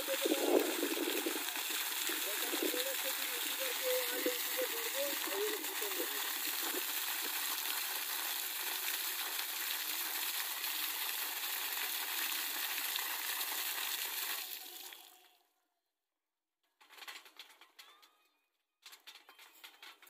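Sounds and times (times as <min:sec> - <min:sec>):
flowing water splashing: 0:00.0 - 0:15.2.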